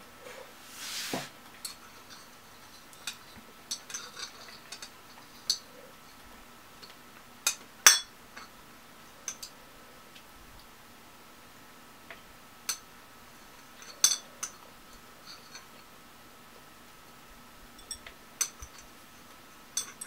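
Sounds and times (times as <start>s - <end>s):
breath-like rush of noise: 0.2s - 1.3s
metal chopsticks clinking: 19.8s - 20.0s.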